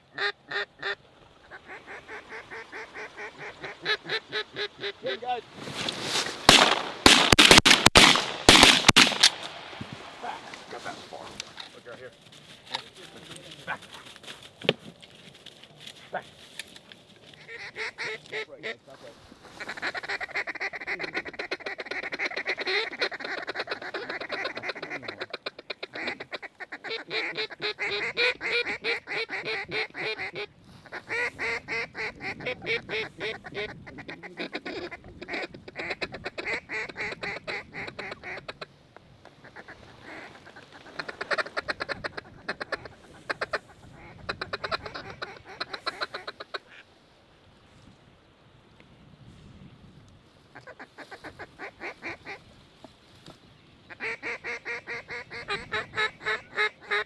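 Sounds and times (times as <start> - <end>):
waterfowl quacking and honking: 0.0 - 5.4, 17.3 - 46.9, 50.5 - 52.9, 53.8 - 57.0.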